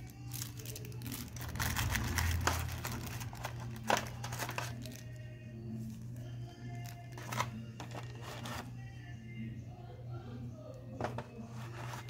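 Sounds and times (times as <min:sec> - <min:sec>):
plastic bags crinkling: 0:00.0 - 0:05.2, 0:06.7 - 0:08.6.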